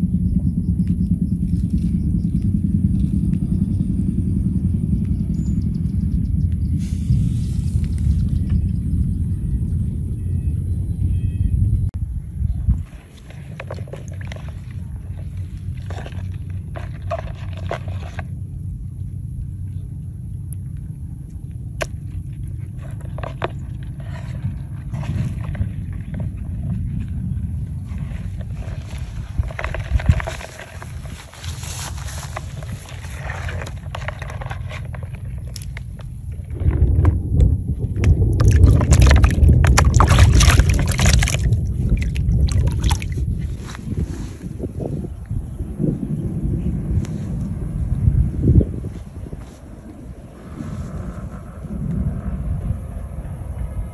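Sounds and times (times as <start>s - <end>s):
wind rumble on microphone: 0.0s - 53.9s
water splashing in basin: 38.3s - 43.3s.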